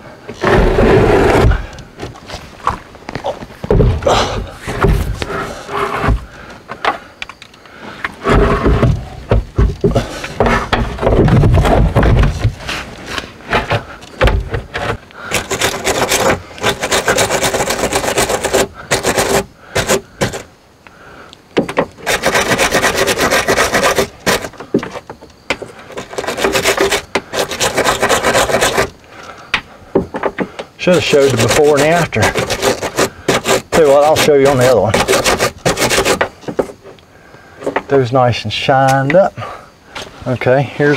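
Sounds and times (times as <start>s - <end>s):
heavy knocks and thuds: 0.4s - 7.0s, 8.2s - 12.8s, 13.5s - 15.0s, 29.5s - 30.6s
wire brush scrubbing metal: 26.0s - 28.9s, 30.8s - 36.3s.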